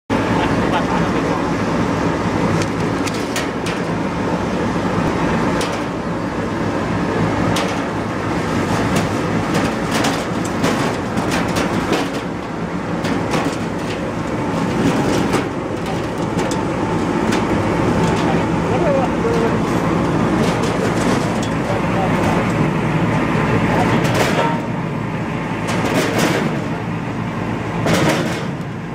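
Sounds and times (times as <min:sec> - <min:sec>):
machine humming and rattling: 0:00.1 - 0:28.9
potatoes clattering into hopper: 0:07.4 - 0:22.7.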